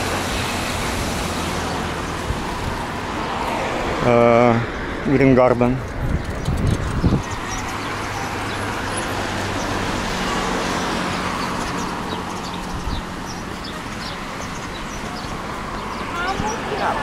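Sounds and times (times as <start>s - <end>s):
road traffic passing: 0.0s - 17.0s
small birds chirping: 5.6s - 17.0s.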